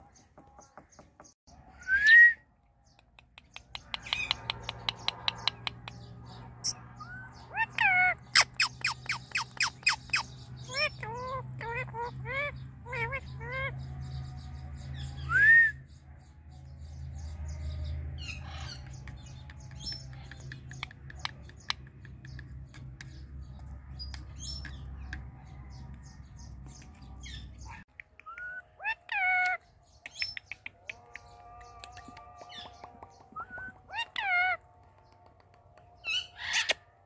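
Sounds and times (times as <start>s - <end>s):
parrot squawking: 6.6s - 13.8s, 33.4s - 34.6s.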